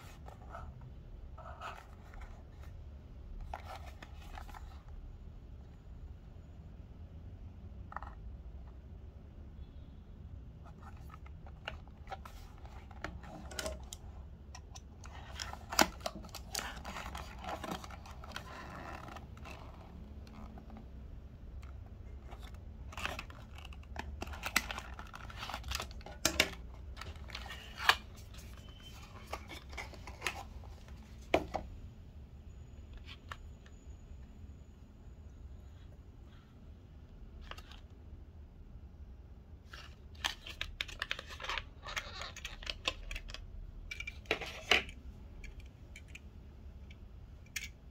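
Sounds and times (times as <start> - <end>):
low steady hum: 0.0 - 47.9
cardboard and plastic rustling: 10.7 - 20.9, 21.7 - 31.6.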